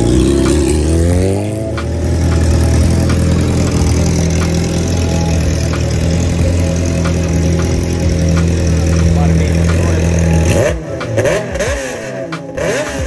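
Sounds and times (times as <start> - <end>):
motorcycle engine idling: 0.0 - 11.9.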